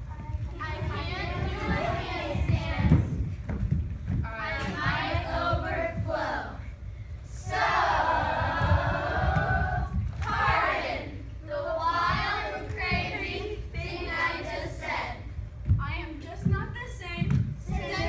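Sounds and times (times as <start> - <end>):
low thuds: 0.0 - 18.0
group of voices singing: 7.4 - 15.2.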